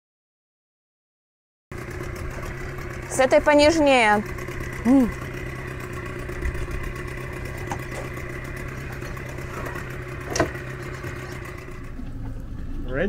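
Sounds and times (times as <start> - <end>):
engine idling: 1.7 - 13.0.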